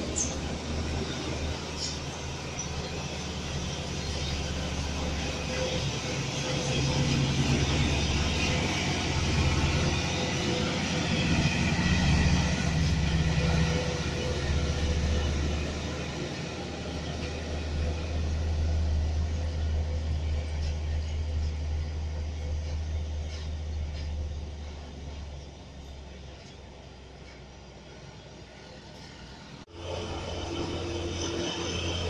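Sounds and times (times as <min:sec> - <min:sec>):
diesel trucks passing: 0:00.0 - 0:32.0
tyre and road noise: 0:00.0 - 0:32.0.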